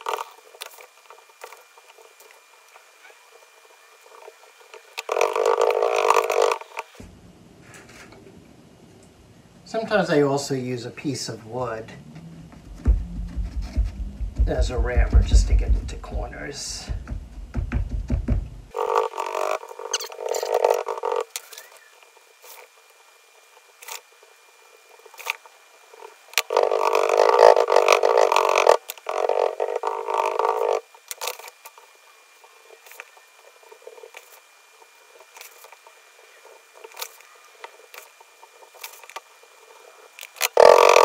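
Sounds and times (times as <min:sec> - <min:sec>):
wooden rammer thumping sand: 0:12.6 - 0:18.6
loud rasping: 0:26.4 - 0:30.8, 0:40.5 - 0:41.0.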